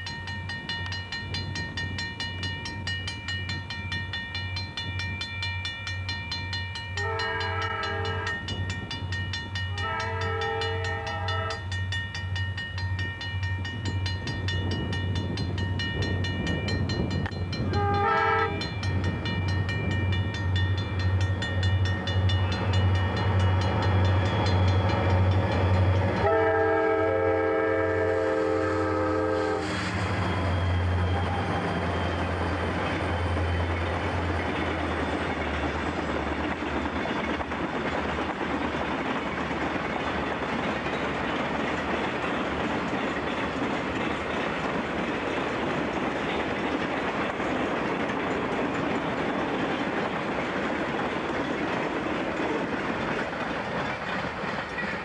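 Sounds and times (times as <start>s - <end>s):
freight cars rolling on rails: 0.0s - 55.0s
locomotive air horn: 7.0s - 8.4s, 9.7s - 11.7s, 17.7s - 18.6s, 26.2s - 30.0s.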